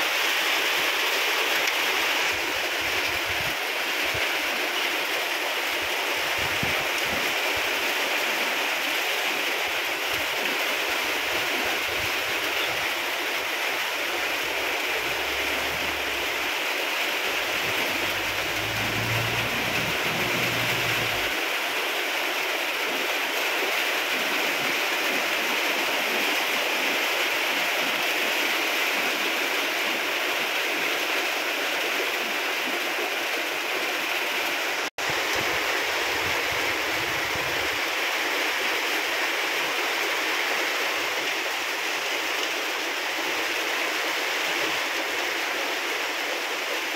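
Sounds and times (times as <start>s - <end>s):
heavy rain falling: 0.0s - 46.9s
low rumble: 14.4s - 16.6s, 17.3s - 21.4s.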